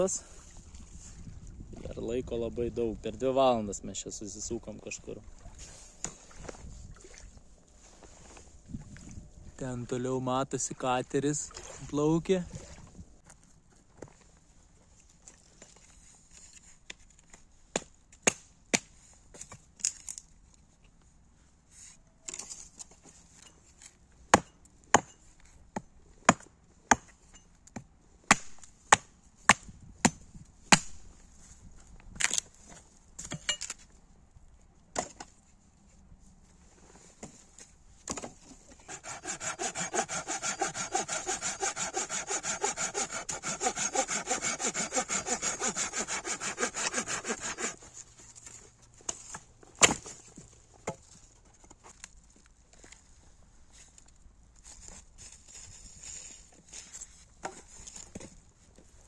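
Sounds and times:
saw cutting firewood: 0:38.2 - 0:48.6.

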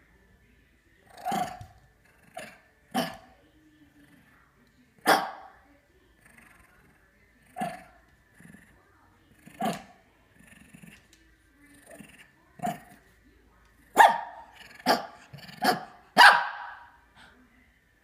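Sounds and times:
dog barking: 0:05.0 - 0:05.6, 0:13.9 - 0:17.0.

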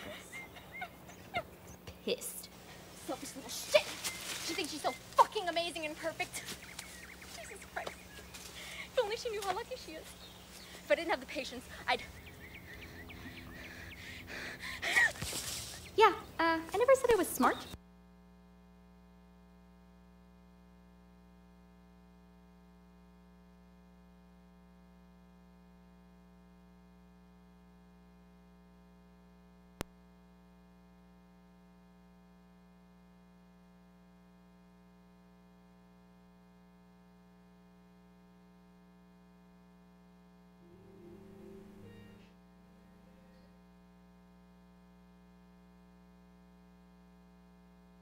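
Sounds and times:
faint music: 0:00.0 - 0:17.8, 0:40.5 - 0:44.3
faint steady hum: 0:00.0 - 0:48.0.

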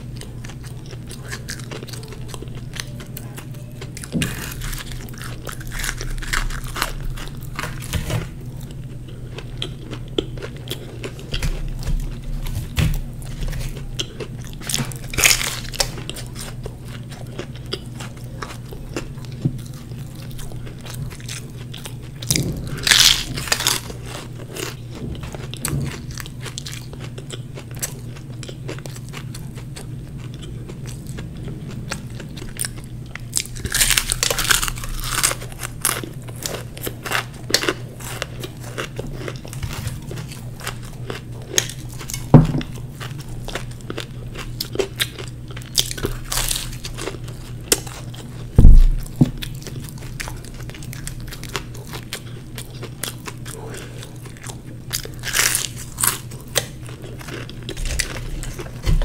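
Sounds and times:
biting and chewing crisp pastry: 0:00.0 - 0:59.0
low thumps: 0:22.3 - 0:23.5, 0:48.6 - 0:49.4.

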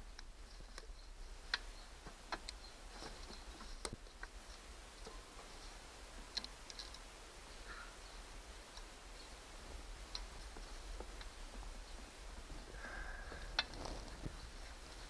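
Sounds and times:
light clicks and taps of tools: 0:00.1 - 0:07.1, 0:10.1 - 0:11.3.

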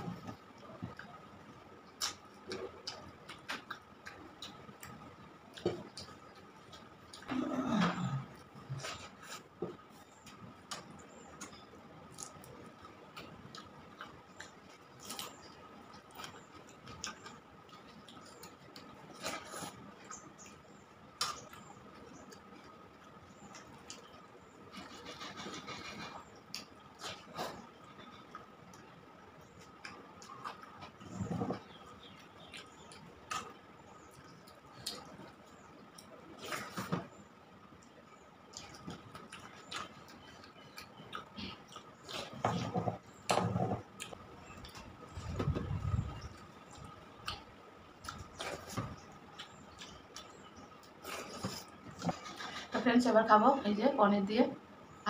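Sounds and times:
chewing clicks and lip smacks: 0:31.7 - 0:35.3, 0:37.8 - 0:42.4, 0:43.3 - 0:44.9, 0:46.1 - 0:52.6.

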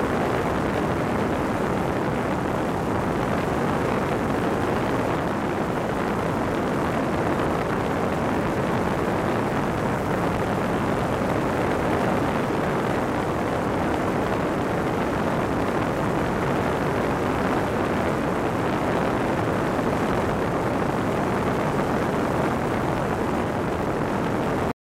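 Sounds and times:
engine and propeller drone: 0:00.0 - 0:24.7
wind rushing over microphone: 0:00.0 - 0:24.7.

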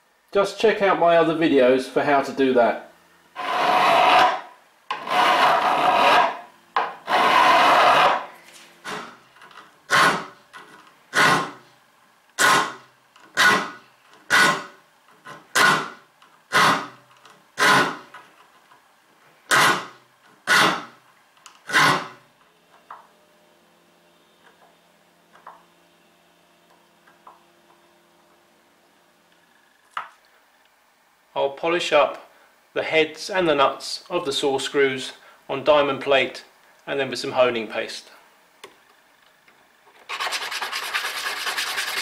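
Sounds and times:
file rasping on saw teeth: 0:03.4 - 0:06.4, 0:07.1 - 0:08.3, 0:09.9 - 0:10.3, 0:11.1 - 0:11.6, 0:12.4 - 0:12.8, 0:13.4 - 0:14.8, 0:15.5 - 0:16.9, 0:17.6 - 0:18.0, 0:19.5 - 0:19.9, 0:20.5 - 0:20.9, 0:21.7 - 0:22.2, 0:40.1 - 0:42.0.

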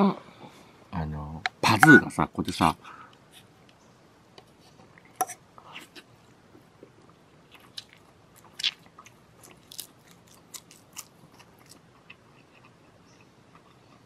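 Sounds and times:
man chewing: 0:06.8 - 0:14.0.

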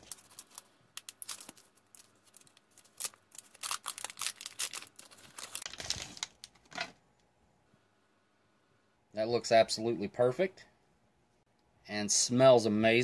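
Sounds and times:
foil pouch crinkling and tearing: 0:00.0 - 0:06.8.

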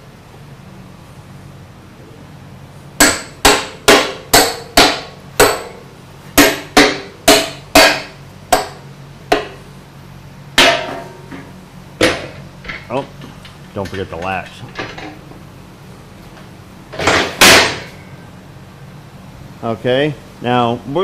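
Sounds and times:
hammer striking metal: 0:03.0 - 0:05.8, 0:06.4 - 0:09.6, 0:10.6 - 0:12.3.

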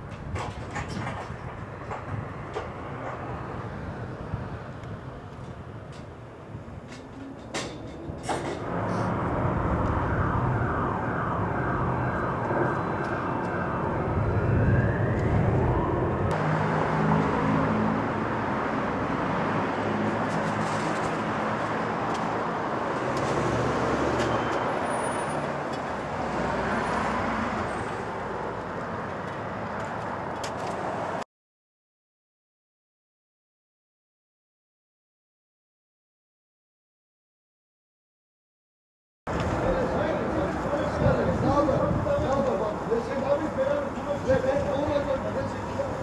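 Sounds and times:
traffic passing: 0:00.0 - 0:31.2, 0:39.3 - 0:46.0
rising whine: 0:08.6 - 0:19.1.

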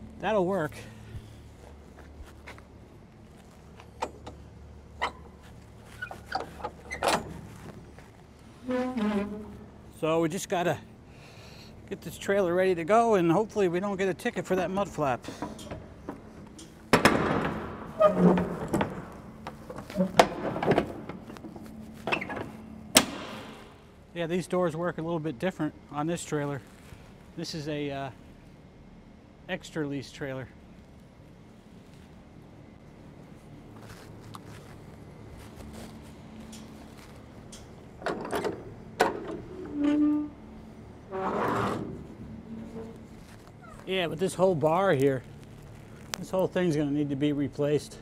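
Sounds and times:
low steady hum: 0:00.0 - 0:48.0
short creak: 0:05.0 - 0:09.8, 0:39.4 - 0:43.9
scraping rustle: 0:33.2 - 0:37.8, 0:39.4 - 0:46.8
metal door lock clanking: 0:37.6 - 0:40.0.

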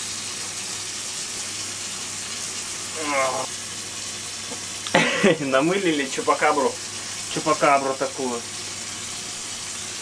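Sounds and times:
shower water running into bathtub: 0:00.0 - 0:10.0
short pitched vocal sound: 0:02.9 - 0:03.5.

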